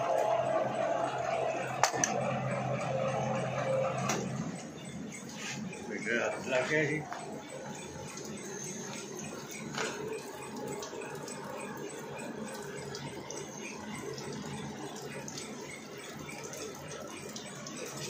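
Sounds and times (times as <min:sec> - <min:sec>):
threading machine humming: 0:00.0 - 0:18.0.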